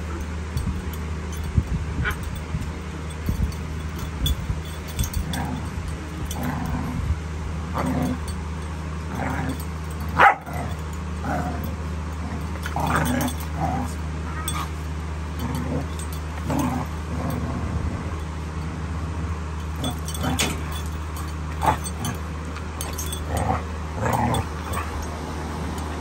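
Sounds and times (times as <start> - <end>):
puppies barking and crying: 7.7 - 26.0.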